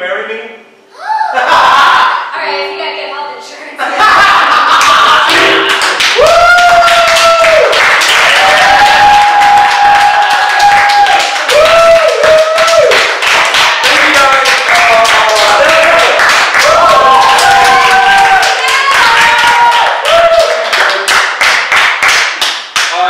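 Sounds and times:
people cheering and whooping: 0:01.0 - 0:02.4, 0:03.9 - 0:13.2, 0:14.7 - 0:21.1
audience clapping: 0:04.5 - 0:23.0.

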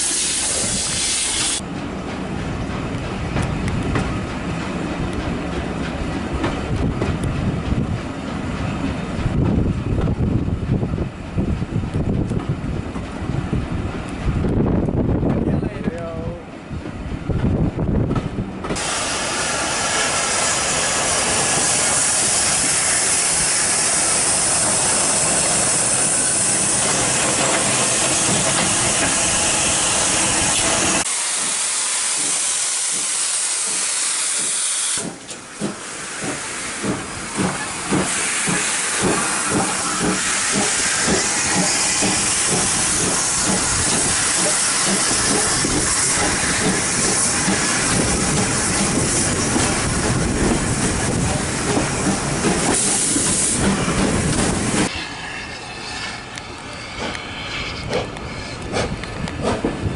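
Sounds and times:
steam locomotive hissing: 0:00.0 - 0:01.7, 0:18.6 - 0:59.9.

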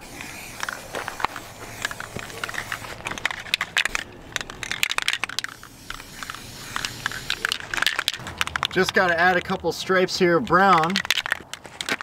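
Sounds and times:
spray paint can hissing: 0:00.0 - 0:09.4
sharp clicks and crackles: 0:00.2 - 0:12.0.

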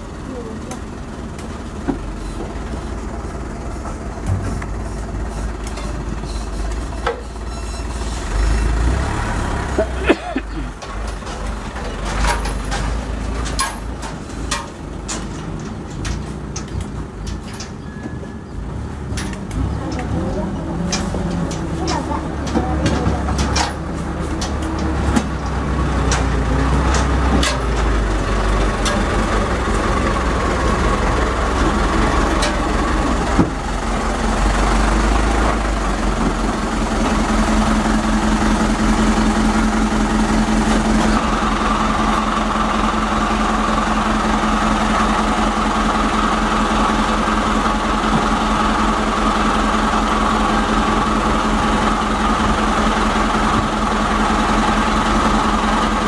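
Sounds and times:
diesel truck engine idling: 0:00.0 - 0:17.9, 0:18.5 - 0:56.0
sharp clicks and knocks: 0:10.8 - 0:17.8, 0:19.0 - 0:30.8.

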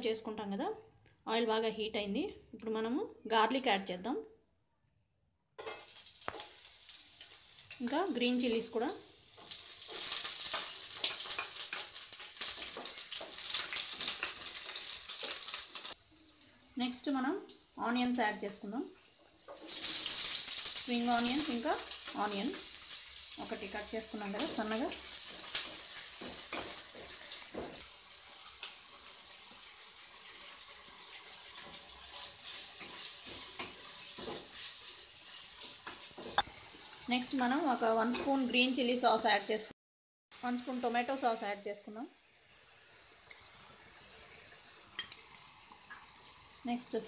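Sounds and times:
garlic sizzling in oil: 0:05.6 - 0:47.0
wooden spatula stirring in pan: 0:09.3 - 0:16.0, 0:24.5 - 0:36.9
wooden spatula scraping wok: 0:30.3 - 0:37.0.

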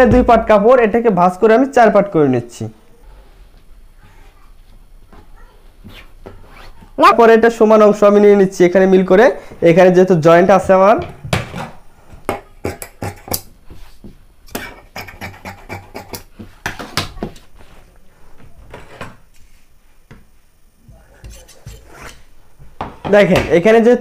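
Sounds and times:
tools and cloth clicking and tapping: 0:10.6 - 0:17.5.

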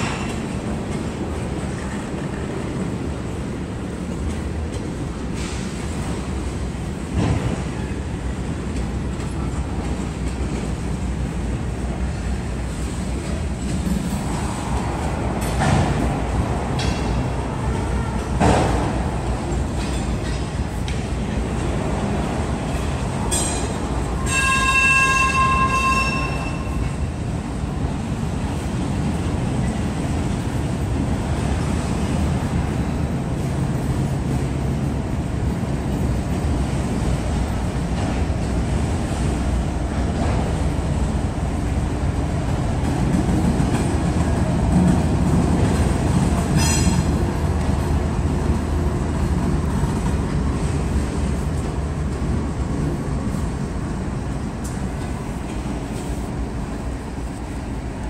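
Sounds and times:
freight cars rolling rumble: 0:00.0 - 0:58.0
steel wheel squeal: 0:24.2 - 0:26.8.

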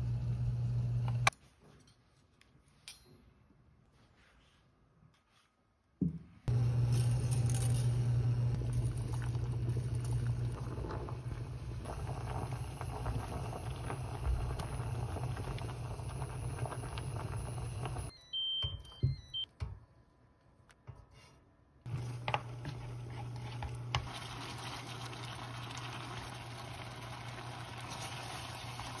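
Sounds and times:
low electrical hum: 0:00.0 - 0:02.0, 0:06.5 - 0:18.1.

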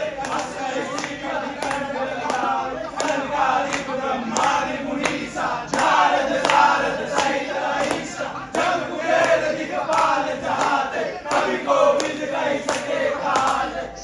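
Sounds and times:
choir singing over beat music: 0:00.0 - 0:14.0.

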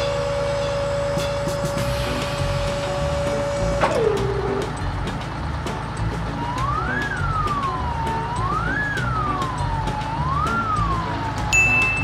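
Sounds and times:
background music with steady beat: 0:00.0 - 0:12.0
wailing siren sound effect: 0:06.4 - 0:11.4.

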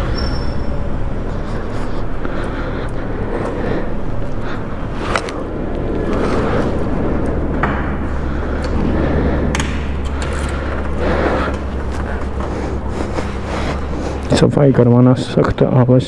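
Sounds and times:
motorcycle engine rumbling: 0:00.0 - 0:14.9.

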